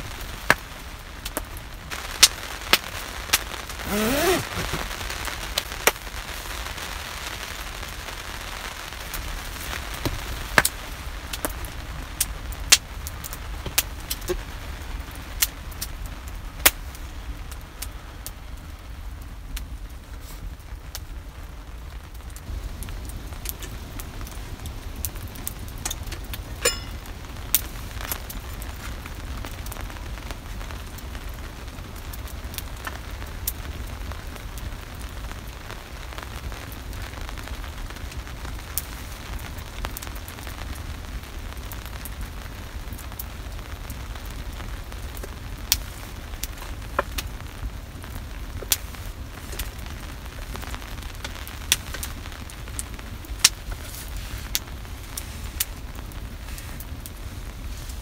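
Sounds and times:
steady low hiss: 0.0s - 58.0s
wood fire crackling: 0.0s - 58.0s
sharp pops: 2.7s - 5.1s.

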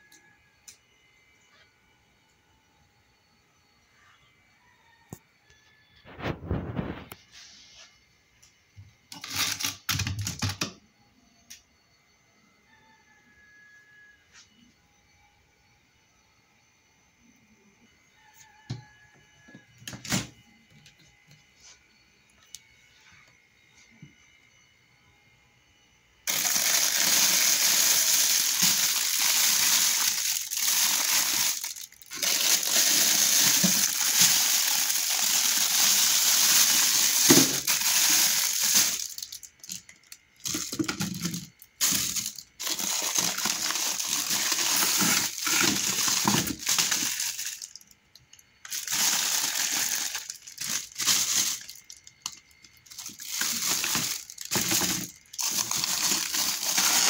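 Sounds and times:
plastic bags and bottles crinkling: 26.3s - 57.0s.

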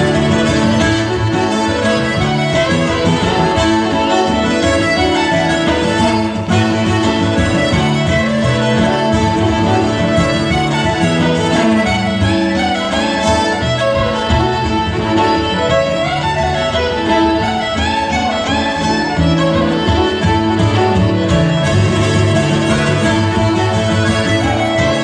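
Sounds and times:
button accordion: 0.0s - 25.0s
fiddle playing a tune: 0.0s - 25.0s
strummed acoustic guitar: 0.0s - 25.0s.

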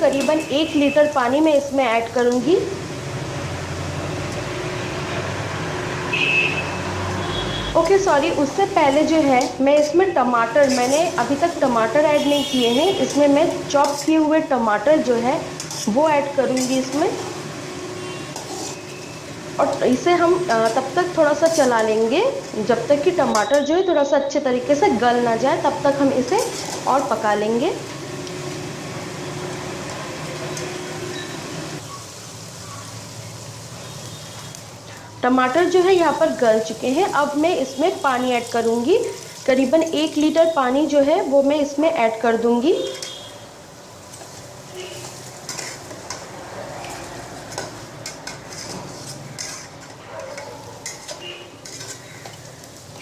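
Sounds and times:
food sizzling in a pot: 0.0s - 53.0s
spatula stirring: 8.8s - 17.4s, 18.0s - 23.6s, 26.2s - 27.2s, 44.0s - 53.0s.

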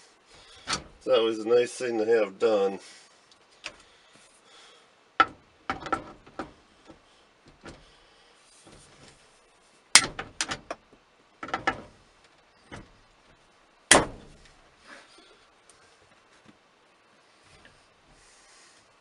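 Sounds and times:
steering wheel clicks and knocks: 11.4s - 12.0s.

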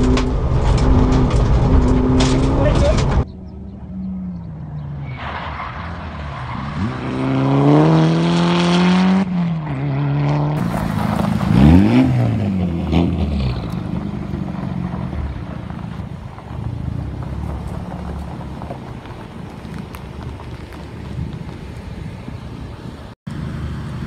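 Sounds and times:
car engine accelerating hard: 5.9s - 19.3s.

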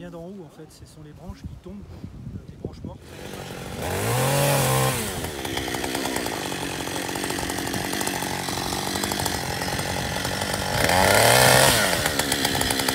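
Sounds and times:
chainsaw revving: 3.0s - 12.9s.

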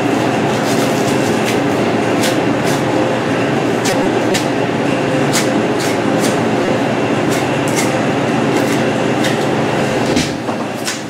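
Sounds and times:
loud machinery noise: 0.0s - 11.0s.

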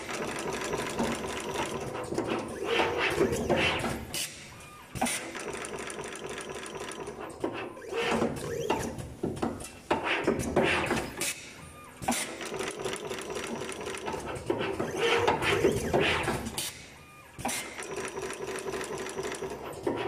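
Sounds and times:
machine mechanism clacking: 0.0s - 20.0s.

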